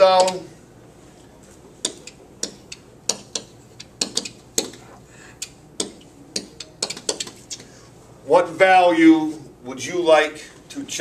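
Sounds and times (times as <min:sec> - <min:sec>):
pen tip tapping on whiteboard: 0:01.8 - 0:04.8, 0:05.8 - 0:07.4.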